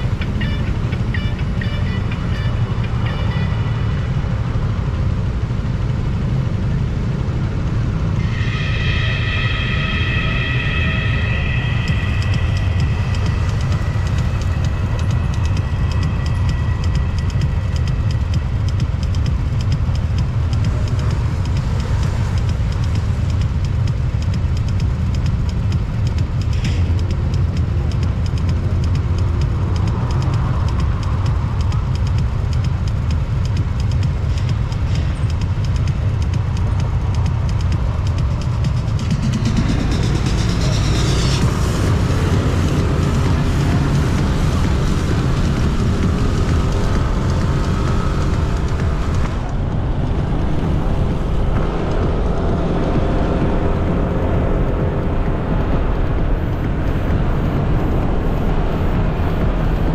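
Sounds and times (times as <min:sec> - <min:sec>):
scooter engine running: 0:00.0 - 0:59.9
wind and road rumble: 0:00.0 - 0:59.9
wind rushing on microphone: 0:41.4 - 0:59.9.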